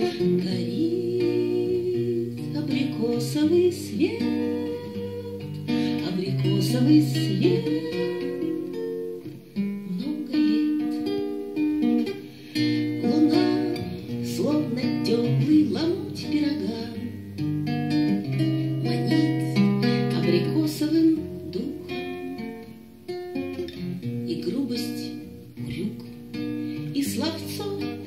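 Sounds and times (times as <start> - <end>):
person singing: 0.0 - 11.7, 12.7 - 17.1, 18.6 - 22.5, 26.8 - 28.0
acoustic guitar playing: 0.0 - 28.0.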